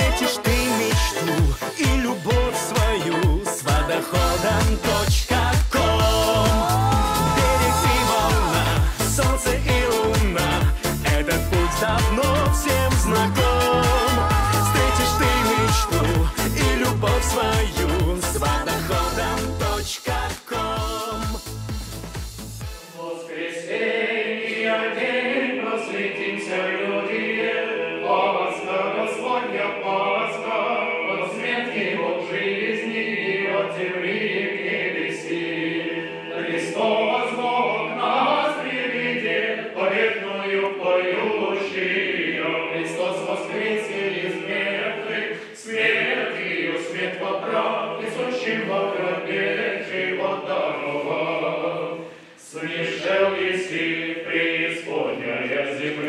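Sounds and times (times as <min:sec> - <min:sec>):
choir singing church chant: 0:00.0 - 0:21.4, 0:22.8 - 0:56.0.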